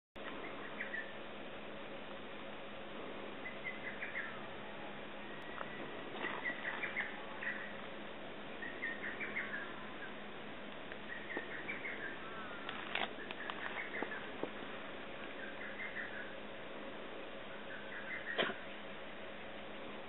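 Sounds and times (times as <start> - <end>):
bird chirping: 0.2 - 1.2, 3.4 - 7.9, 8.5 - 10.3, 11.0 - 16.4, 17.5 - 18.8
faint steady hum: 0.2 - 20.0.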